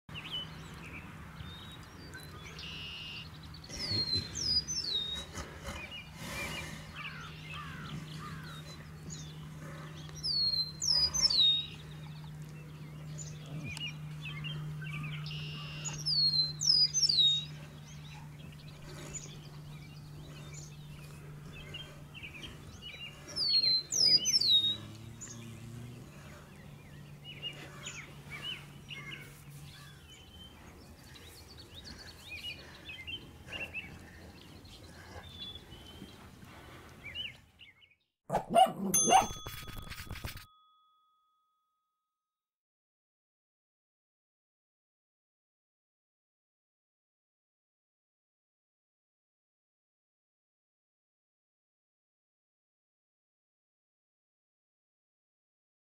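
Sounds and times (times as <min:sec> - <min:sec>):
steady low hum: 0:00.1 - 0:37.1.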